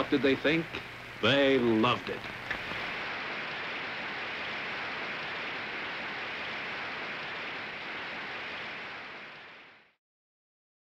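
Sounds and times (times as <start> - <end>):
audience applause: 2.7 - 9.7.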